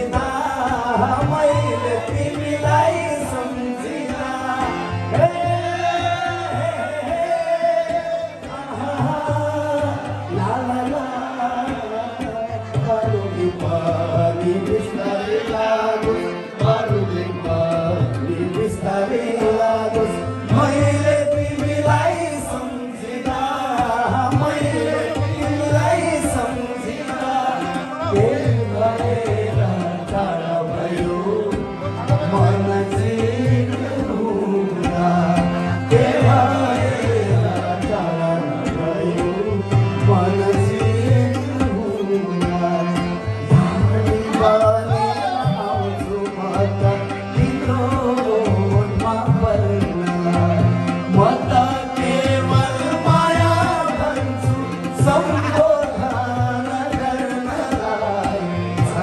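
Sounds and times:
harmonium: 0:00.0 - 0:59.0
man singing: 0:00.0 - 0:59.0
tabla drums: 0:00.0 - 0:59.0.

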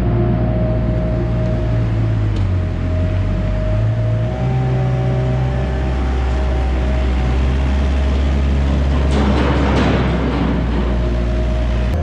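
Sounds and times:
wheel loader engine running: 0:00.0 - 0:12.0.

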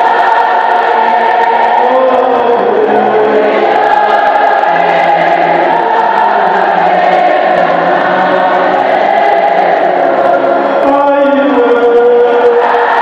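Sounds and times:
choir singing a hymn: 0:00.0 - 0:13.0.

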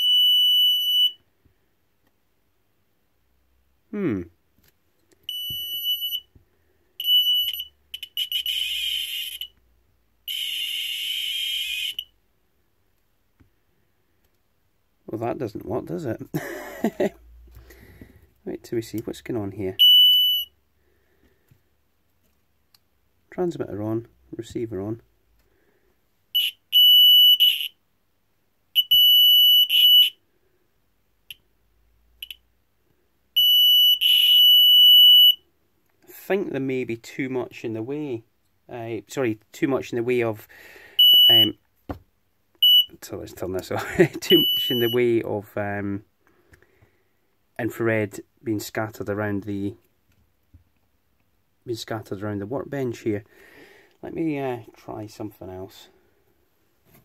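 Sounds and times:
short high beep: 0:41.0 - 0:41.6, 0:44.3 - 0:45.0.

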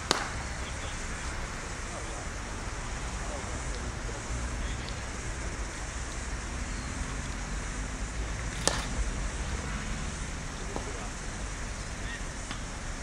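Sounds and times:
cricket bat striking ball: 0:00.0 - 0:05.3, 0:08.4 - 0:11.3
outdoor background rumble: 0:00.0 - 0:13.0.

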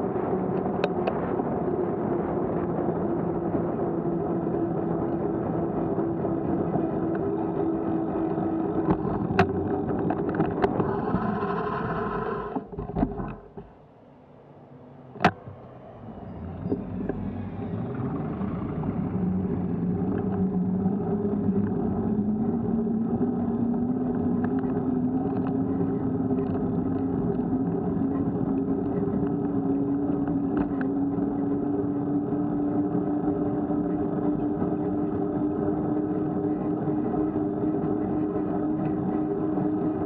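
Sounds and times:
vehicle pulling away: 0:14.7 - 0:40.0.

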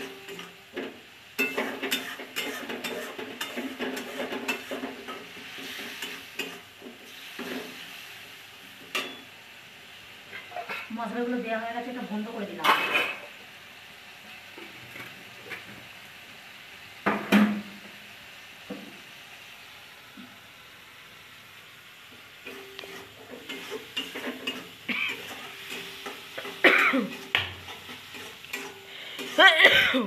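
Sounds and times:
metal spatula scraping a pan: 0:00.0 - 0:08.1, 0:22.4 - 0:29.8
light sizzle: 0:00.0 - 0:30.0.

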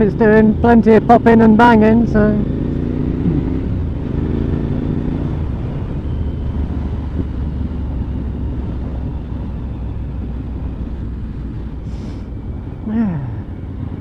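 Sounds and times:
motorcycle engine cruising: 0:00.0 - 0:14.0
wind rumble on microphone: 0:00.0 - 0:14.0.

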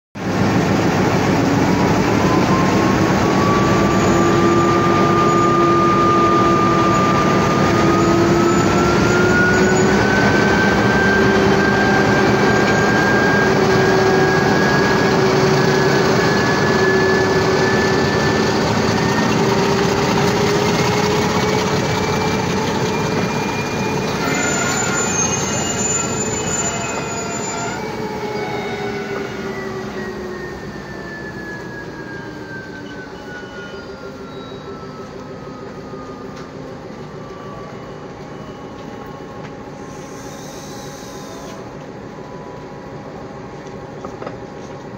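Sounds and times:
train rolling past: 0:00.2 - 0:44.9
train brakes squealing: 0:01.5 - 0:43.2.

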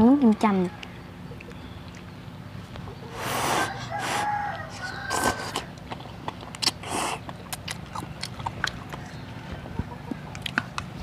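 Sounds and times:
chicken calling: 0:02.8 - 0:05.8
slurping noodles: 0:03.1 - 0:04.3, 0:05.1 - 0:05.7.

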